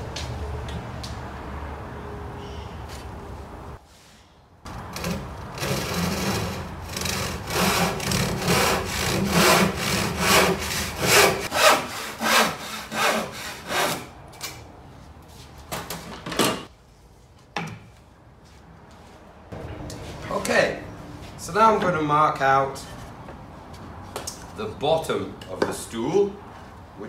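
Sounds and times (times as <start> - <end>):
handsaw sawing wood: 5.0 - 14.1.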